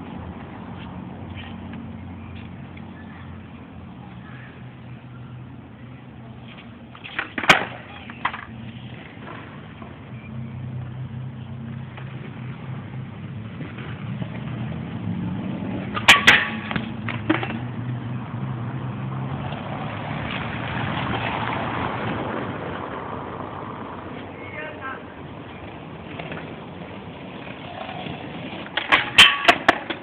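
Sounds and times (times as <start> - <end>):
skateboard wheels rolling on pavement: 0.0 - 30.0
skateboard clacks: 6.4 - 9.9, 15.7 - 17.8, 25.6 - 30.0.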